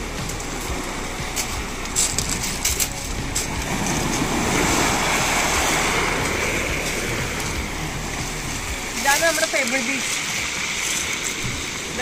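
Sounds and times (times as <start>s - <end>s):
surf on pebble beach: 0.0s - 12.0s
wave rushing up the shore: 3.1s - 12.0s.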